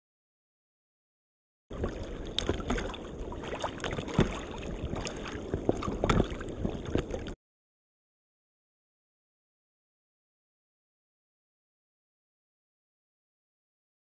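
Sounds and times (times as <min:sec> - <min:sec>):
water sloshing and splashing: 0:01.7 - 0:07.4.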